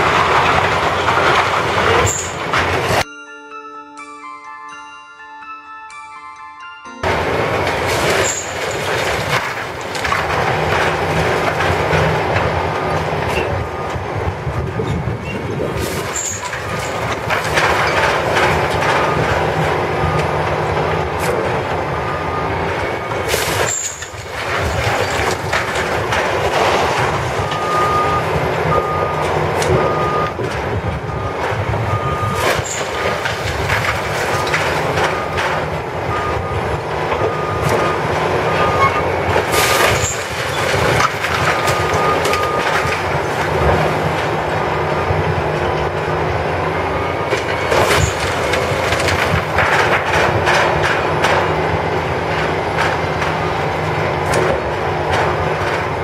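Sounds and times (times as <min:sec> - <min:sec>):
heavy machinery running: 0:00.0 - 0:03.1, 0:07.0 - 0:56.0
reversing alarm beeping: 0:12.6 - 0:15.4, 0:21.8 - 0:24.8, 0:27.1 - 0:33.5, 0:34.2 - 0:49.8.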